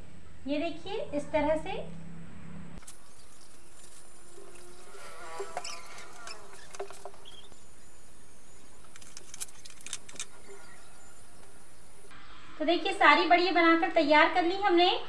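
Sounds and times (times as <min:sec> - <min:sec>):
steady hiss: 0:02.8 - 0:12.2
sharp clicks: 0:08.6 - 0:10.6.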